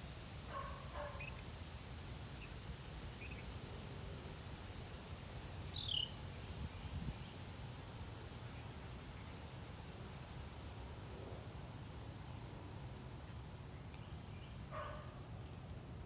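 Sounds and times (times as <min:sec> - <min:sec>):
bird chirps: 0:05.7 - 0:06.2.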